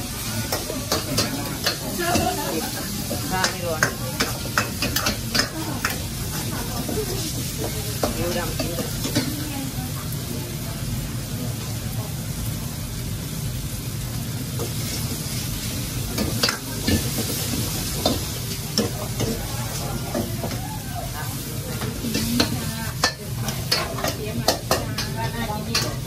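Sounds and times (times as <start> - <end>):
metal ladles scraping woks: 0.0 - 9.6
food sizzling in woks: 0.0 - 26.0.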